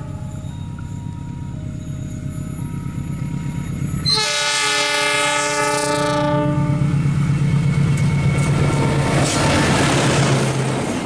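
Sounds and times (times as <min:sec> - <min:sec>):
locomotive engine drone: 0:00.0 - 0:11.0
train rumbling: 0:00.0 - 0:11.0
locomotive air horn blast: 0:04.0 - 0:06.9.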